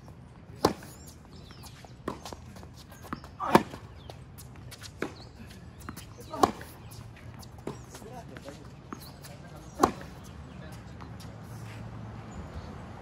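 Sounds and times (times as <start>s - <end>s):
tennis ball bouncing: 0.5s - 11.5s
racket striking tennis ball: 0.6s - 4.0s, 4.7s - 10.3s.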